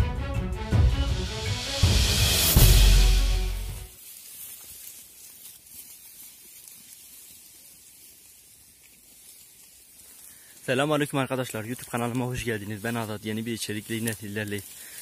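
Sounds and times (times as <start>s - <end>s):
intro music: 0.0s - 3.9s
faint outdoor hiss: 2.3s - 15.0s.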